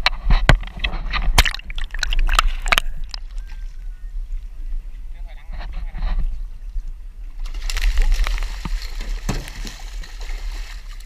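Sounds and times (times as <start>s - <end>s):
fish splashing in water: 1.4s - 3.3s.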